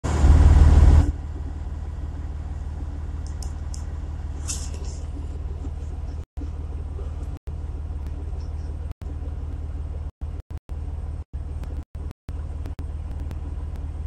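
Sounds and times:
truck engine idling: 0.0s - 14.0s.

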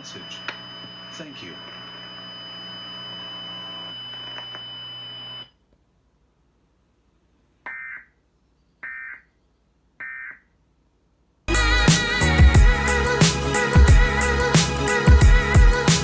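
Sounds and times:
electronic hum with high tone: 0.0s - 5.6s.

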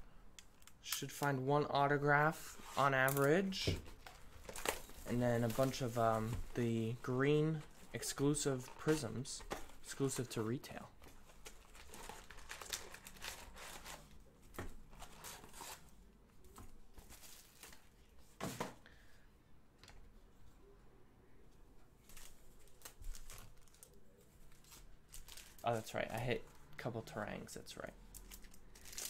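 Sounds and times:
card packs being shuffled: 2.4s - 15.9s, 22.0s - 26.6s, 28.1s - 29.0s
plastic wrapping crinkling: 3.0s - 10.4s, 11.0s - 14.2s, 22.0s - 26.5s, 28.1s - 29.0s.

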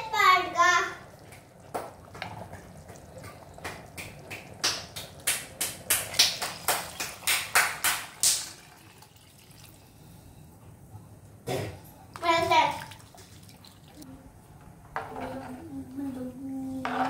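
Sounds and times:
liquid splashes: 12.6s - 14.0s.

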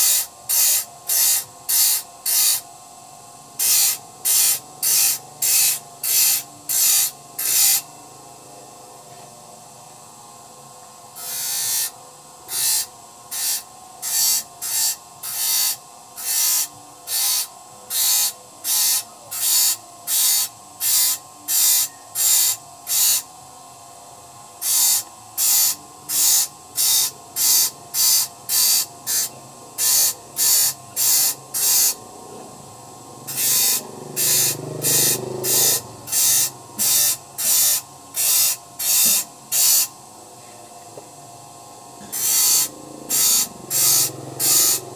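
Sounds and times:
file rasping on saw teeth: 12.5s - 23.2s, 33.3s - 37.8s.

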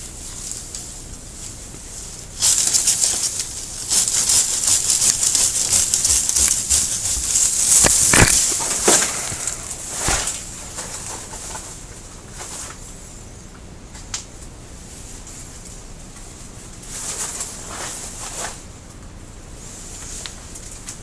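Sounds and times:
foliage rustling: 0.0s - 13.4s, 14.1s - 21.0s
pruning shears snipping: 2.4s - 11.4s.

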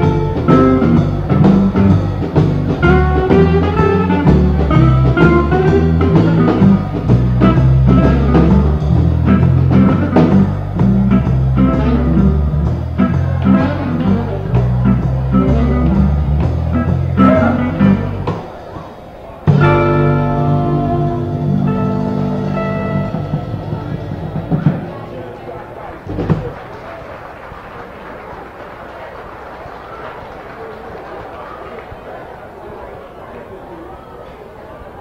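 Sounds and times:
bass line: 0.0s - 18.6s, 19.5s - 26.6s
blues guitar: 0.0s - 26.7s
drums: 0.0s - 32.1s.

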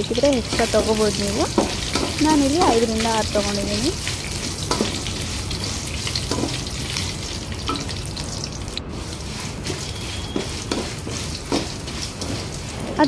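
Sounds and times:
spices sizzling in oil: 0.0s - 13.0s
spatula scraping a steel pan: 8.9s - 13.0s.

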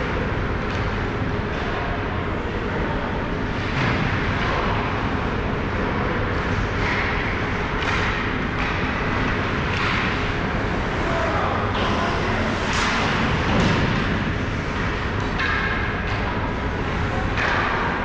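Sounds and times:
skates and sticks scraping: 5.8s - 18.0s.

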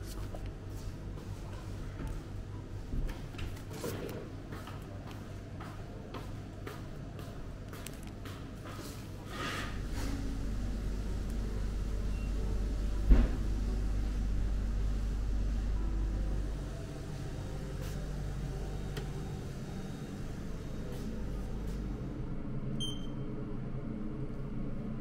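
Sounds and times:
low room hum: 0.0s - 25.0s
short electronic beep: 22.8s - 23.2s.

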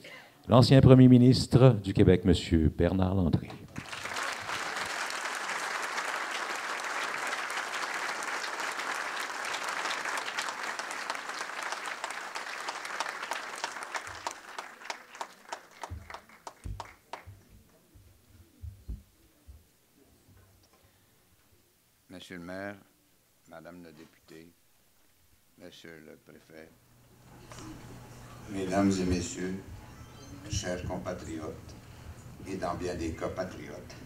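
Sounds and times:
audience applauding: 3.7s - 17.5s.

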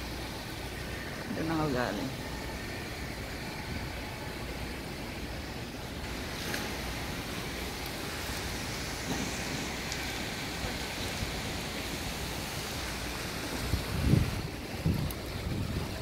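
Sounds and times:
wind rushing over microphone: 12.9s - 16.0s.

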